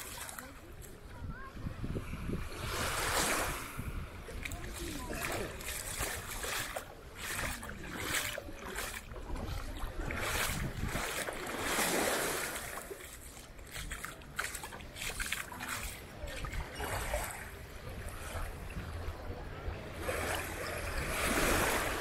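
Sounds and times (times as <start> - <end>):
wind on microphone: 1.0 - 12.0
sea water washing: 2.6 - 18.9.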